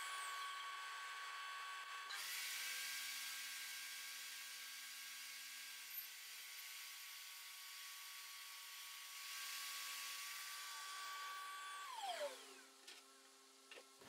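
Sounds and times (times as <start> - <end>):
table saw winding down: 10.5 - 12.7.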